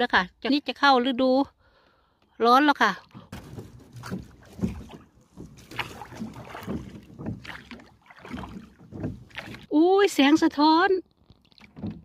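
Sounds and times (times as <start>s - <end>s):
oars splashing in water: 3.0s - 12.0s.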